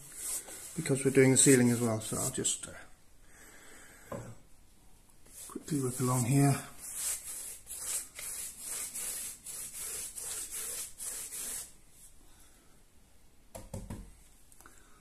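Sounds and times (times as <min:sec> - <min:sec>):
paintbrush scratching on wall: 0:00.0 - 0:02.4, 0:05.3 - 0:11.8.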